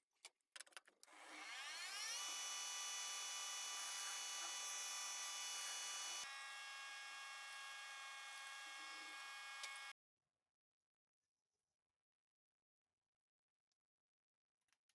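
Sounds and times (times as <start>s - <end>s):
metal lathe whining: 1.1s - 9.9s.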